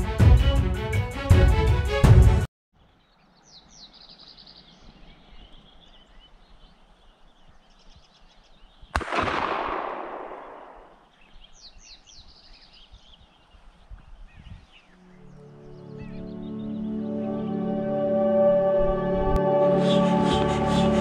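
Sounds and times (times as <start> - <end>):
high bird calls and chirps: 2.8 - 9.0, 10.4 - 17.3
gunshot with echo: 8.9 - 11.1.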